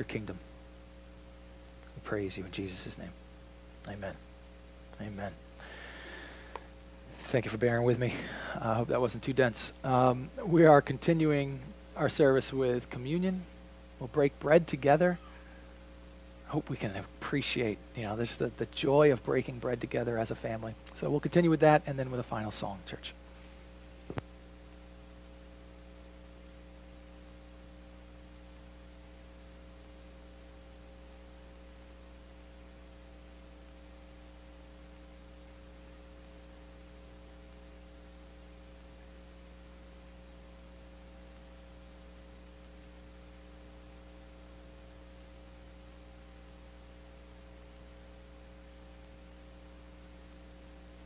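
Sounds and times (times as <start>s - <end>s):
faint hiss: 0.0s - 25.2s
electrical mains hum: 0.0s - 51.0s.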